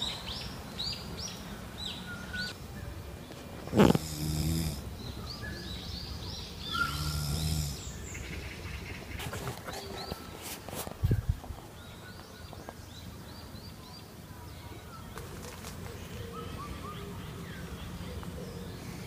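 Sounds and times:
birds chirping: 0:00.0 - 0:19.0
person snoring: 0:03.7 - 0:04.8, 0:06.8 - 0:07.9
sharp snort: 0:03.7 - 0:04.8, 0:06.8 - 0:08.0.

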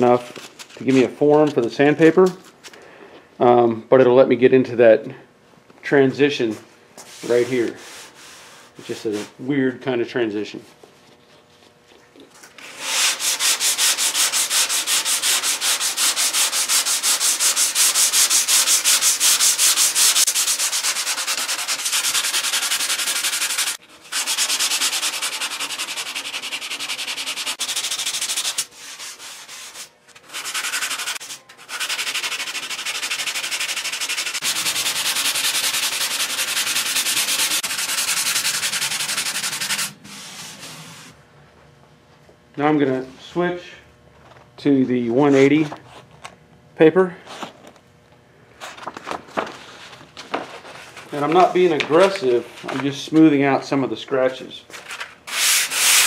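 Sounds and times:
sandpaper scrubbing back and forth: 0:07.1 - 0:09.3, 0:12.6 - 0:41.2, 0:55.3 - 0:56.0.

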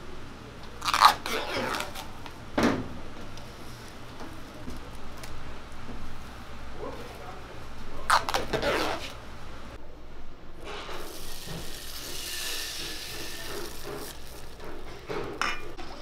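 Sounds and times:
crepe batter sizzling in a pan: 0:10.9 - 0:14.8.

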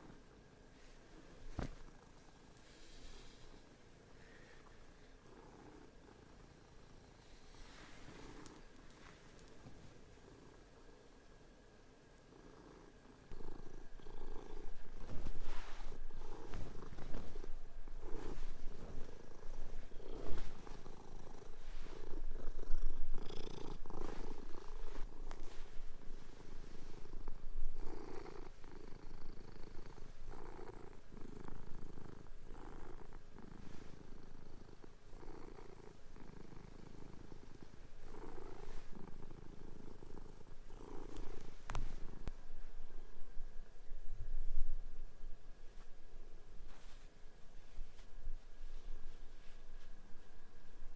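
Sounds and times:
cat purring: 0:00.0 - 0:11.4, 0:12.1 - 0:44.9.

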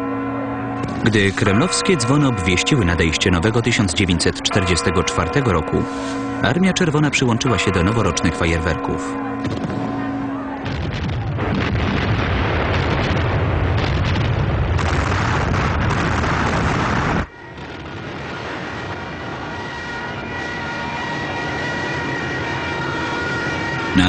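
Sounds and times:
heavy rumble: 0:09.2 - 0:22.7
artillery guns firing: 0:10.6 - 0:18.8.

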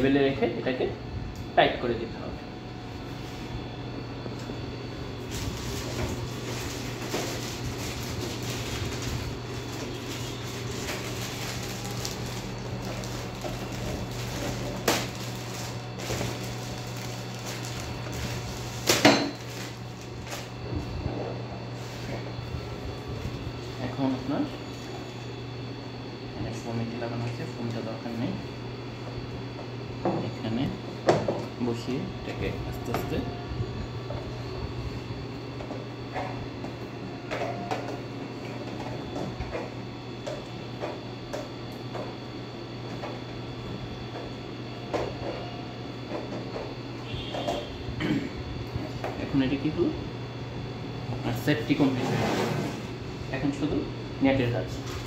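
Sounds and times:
steady low hum: 0:00.0 - 0:55.0
plastic wrapping crinkling: 0:05.2 - 0:20.5.

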